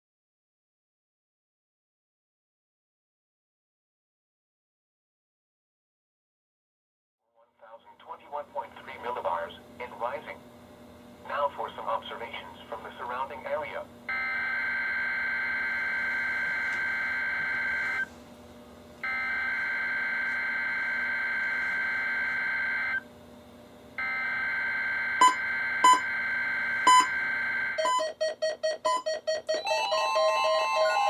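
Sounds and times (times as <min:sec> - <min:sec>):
chorus of alert tones: 0:24.0 - 0:31.0
data tone bursts: 0:25.2 - 0:31.0
radios beeping sharply: 0:25.2 - 0:31.0.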